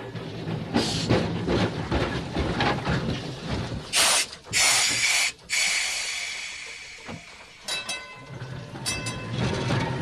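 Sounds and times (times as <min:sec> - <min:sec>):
streetcar rattling on rails: 0:00.0 - 0:10.0
air hissing bursts: 0:04.0 - 0:07.5.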